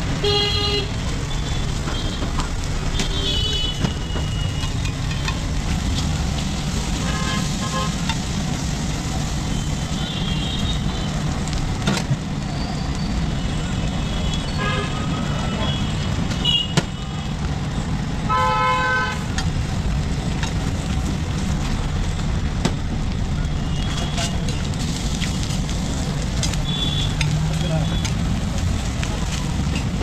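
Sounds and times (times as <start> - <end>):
road traffic rumble: 0.0 - 30.0
vehicle horns: 0.2 - 0.9, 7.0 - 8.0, 18.3 - 19.2
food sizzling on griddle: 4.0 - 13.4, 23.9 - 30.0.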